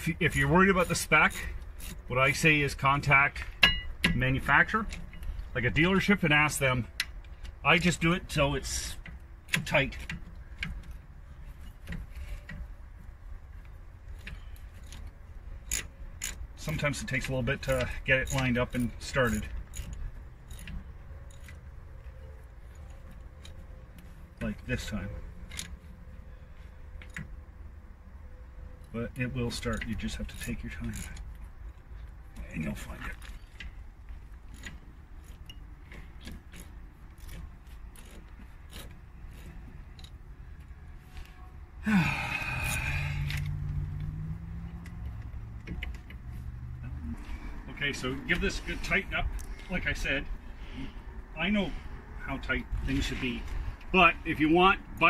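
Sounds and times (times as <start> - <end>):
bolt clicking and scraping: 0.3 - 27.6, 28.7 - 41.5, 42.6 - 51.0
faint metallic clicks and taps: 43.2 - 47.0.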